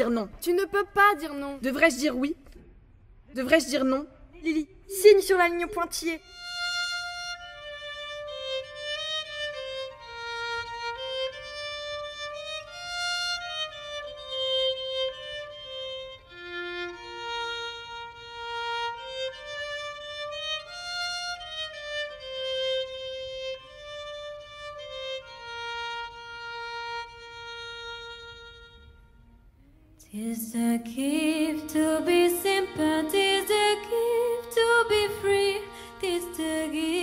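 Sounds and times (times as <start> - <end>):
solo violin melody: 6.2 - 29.4, 30.6 - 37.0.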